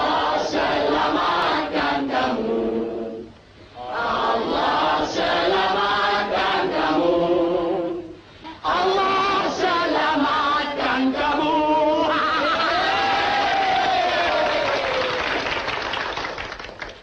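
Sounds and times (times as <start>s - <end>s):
group of voices singing: 0.0s - 13.4s.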